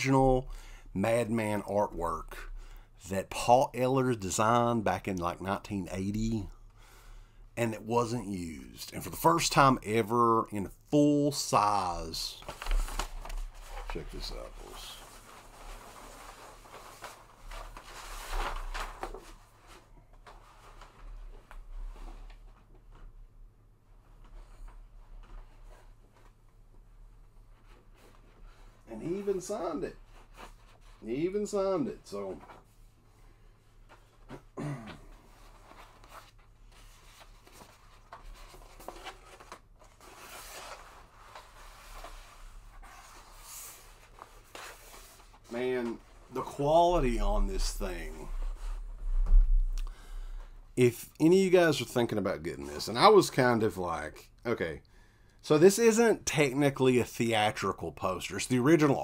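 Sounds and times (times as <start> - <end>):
paper poster rustling: 11.0 - 23.2, 27.4 - 49.6.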